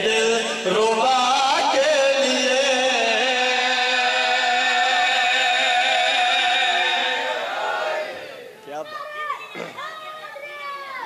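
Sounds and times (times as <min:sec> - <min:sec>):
man chanting into microphone: 0:00.0 - 0:07.1.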